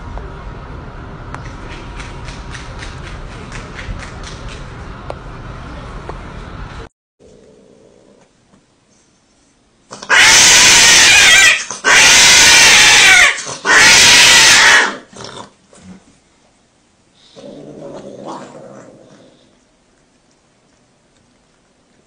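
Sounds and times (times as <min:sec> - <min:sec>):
cat yowling: 0:10.0 - 0:15.1.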